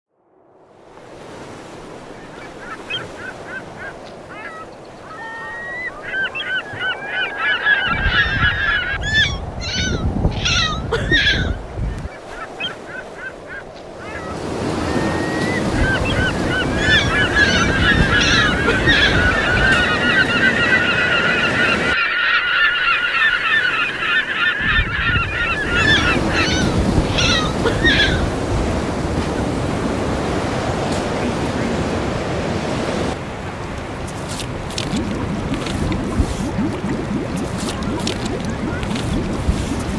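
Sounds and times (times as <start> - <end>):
surf rushing: 0.5 - 39.9
flock of birds calling: 2.2 - 33.2.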